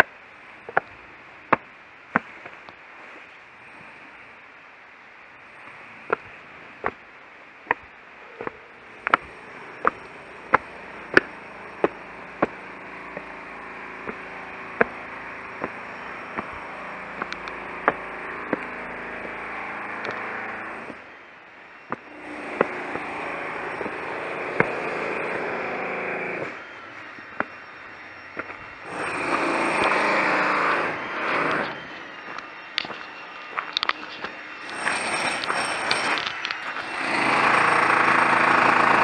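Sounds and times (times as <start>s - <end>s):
steady rushing noise: 0.0s - 39.0s
footsteps on stone steps: 0.7s - 3.2s, 5.6s - 7.0s, 7.6s - 21.0s, 21.9s - 25.6s, 27.2s - 27.6s, 28.4s - 38.0s.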